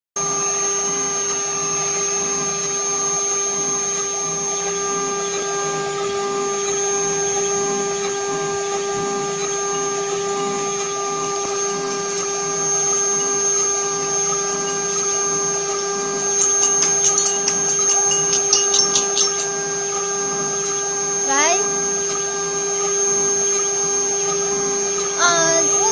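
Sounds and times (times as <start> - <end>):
router spindle whining: 0.2 - 25.9
sharp ticks: 16.4 - 19.5.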